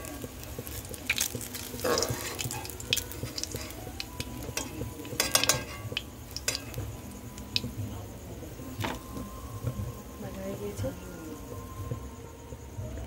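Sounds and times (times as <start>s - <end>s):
hot oil sizzling: 0.0s - 13.0s
metal spatula scraping a wok: 1.5s - 3.8s, 4.6s - 6.8s.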